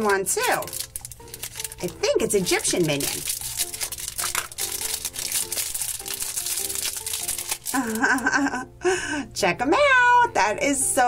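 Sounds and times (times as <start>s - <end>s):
plastic wrapper crinkling: 0.0s - 8.5s
light background music: 0.0s - 11.0s.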